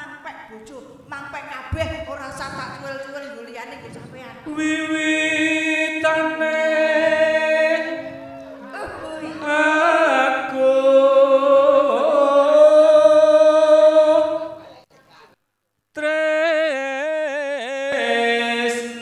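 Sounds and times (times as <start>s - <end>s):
person singing into a microphone: 4.0s - 14.6s.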